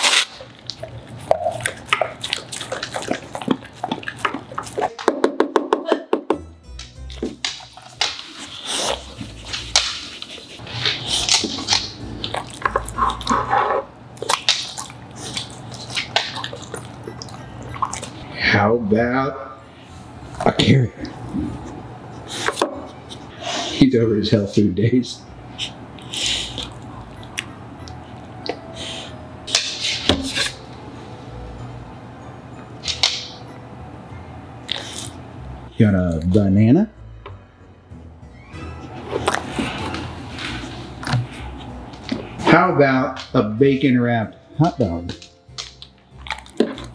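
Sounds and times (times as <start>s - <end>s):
dog chewing and licking lips: 0.0s - 5.0s, 7.1s - 13.6s, 14.2s - 18.2s, 26.0s - 28.6s, 45.6s - 46.9s.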